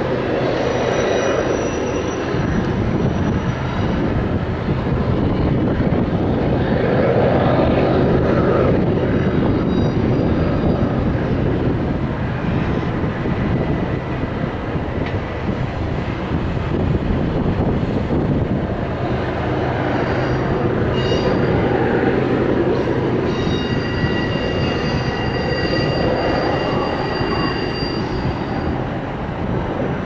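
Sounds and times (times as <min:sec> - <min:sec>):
high wheel squeals: 0:00.0 - 0:04.2, 0:07.8 - 0:11.4, 0:19.5 - 0:29.2
freight train wheels rumbling: 0:00.0 - 0:30.0.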